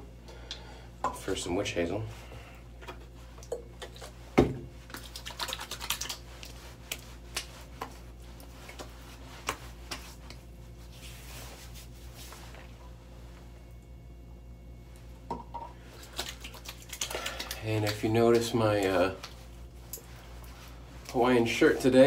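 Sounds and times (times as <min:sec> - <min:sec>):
soft rustle: 0:06.2 - 0:13.7, 0:19.2 - 0:21.8
hands slapping face: 0:08.7 - 0:10.4.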